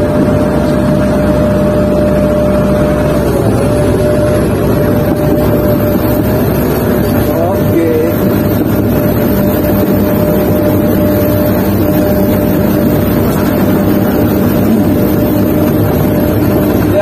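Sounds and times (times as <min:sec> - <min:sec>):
excavator diesel engine and hydraulics: 0:00.0 - 0:17.0
steady whine: 0:00.0 - 0:17.0.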